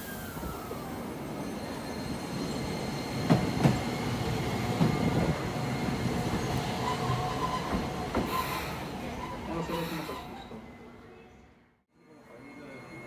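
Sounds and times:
tram wheels rumbling on rails: 0.5s - 10.7s.

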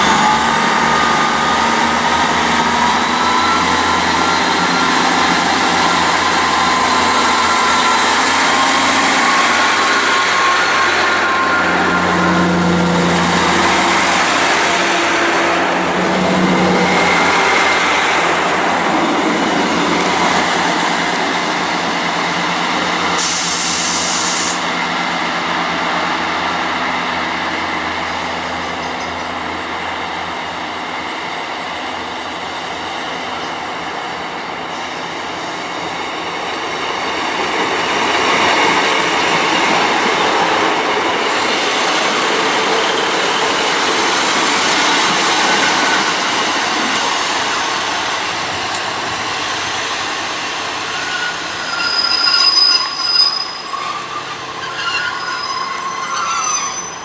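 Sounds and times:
train passing on rails: 0.0s - 57.0s
short shrill sound: 51.0s - 57.0s.

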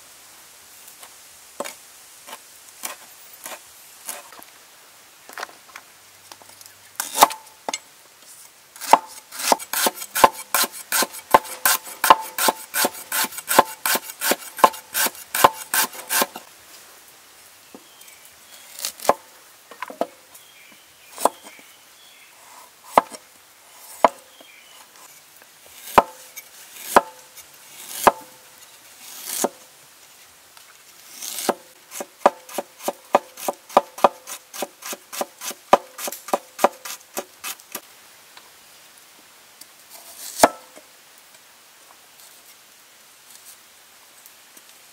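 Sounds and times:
cleaver chopping on wooden board: 8.8s - 16.3s, 25.9s - 26.2s, 26.9s - 27.2s, 27.9s - 28.3s, 31.4s - 37.0s.

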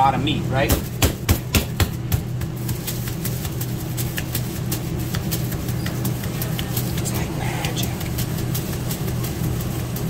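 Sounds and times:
low hum of kitchen machinery: 0.0s - 10.0s.

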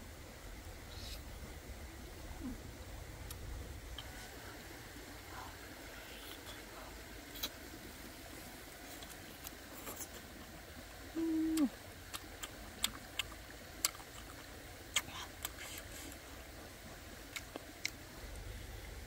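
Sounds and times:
lip smacks and chewing: 7.3s - 7.6s, 12.1s - 16.2s, 17.2s - 18.0s
person humming mm: 11.1s - 11.8s.

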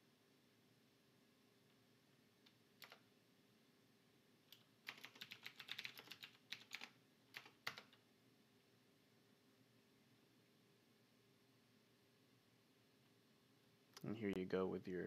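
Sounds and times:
keyboard typing: 2.5s - 3.1s, 4.5s - 8.0s.

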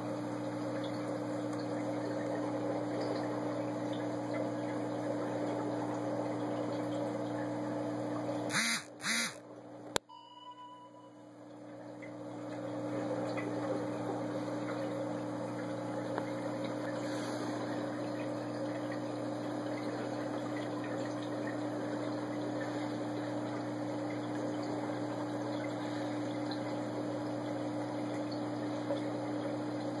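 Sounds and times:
aquarium pump humming: 0.0s - 30.0s.

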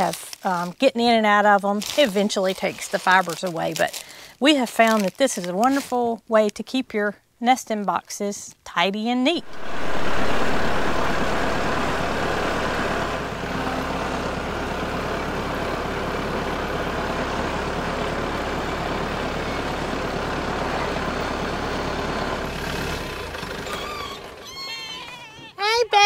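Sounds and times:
tractor engine running: 9.3s - 24.5s.

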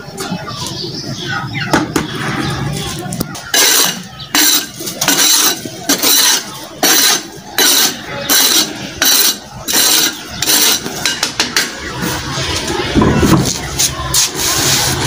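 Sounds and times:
hand broom sweeping brick floor: 3.3s - 15.0s.

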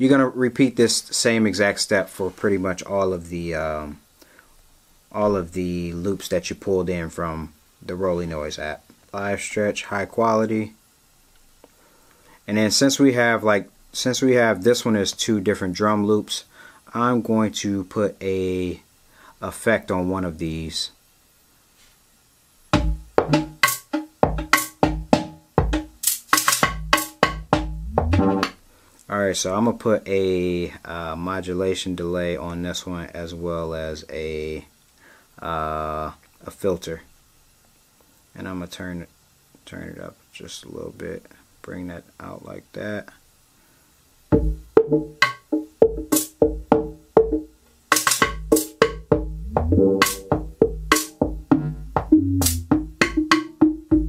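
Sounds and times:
electronic drum loop: 22.7s - 28.6s, 44.3s - 54.0s
woody percussion hits: 22.8s - 28.6s, 48.0s - 54.0s.

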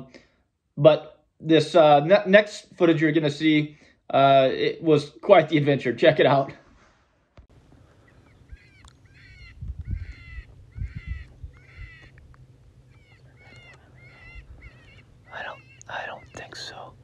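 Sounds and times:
high-pitched animal calls: 8.0s - 17.0s.

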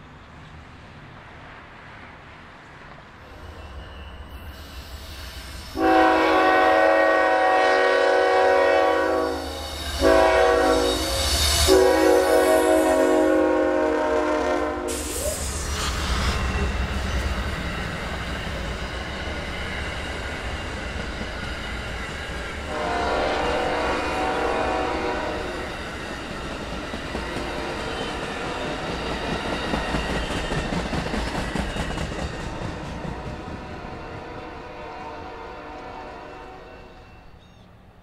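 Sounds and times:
train horn: 5.7s - 15.6s, 22.6s - 25.7s, 27.2s - 28.3s, 33.1s - 37.3s
train wheels clacking on rails: 14.9s - 34.4s.

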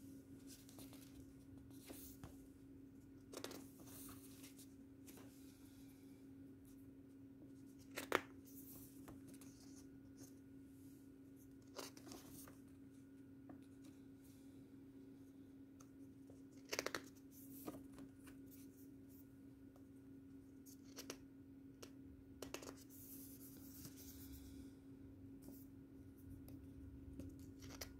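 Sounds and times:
faint steady hum: 0.0s - 27.9s
paper pages turning: 3.3s - 5.3s, 7.8s - 10.3s, 11.6s - 12.6s.

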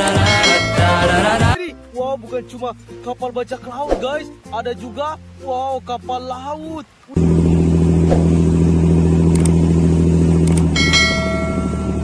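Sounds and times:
bell-like ringing tone: 0.3s - 1.1s, 10.8s - 12.0s
boat engine droning: 7.2s - 12.0s.

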